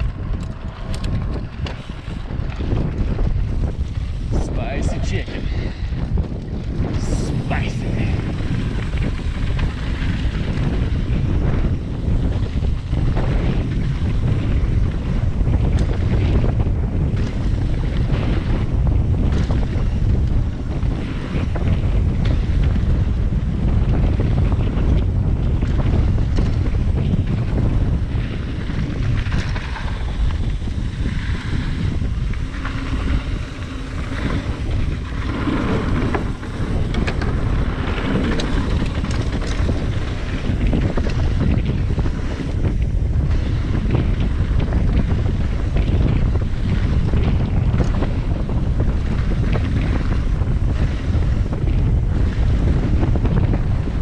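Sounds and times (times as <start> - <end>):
bike clattering over bumps: 0.0 - 7.0, 8.1 - 54.0
tyres rumbling on dirt trail: 0.0 - 54.0
wind buffeting microphone: 0.0 - 54.0.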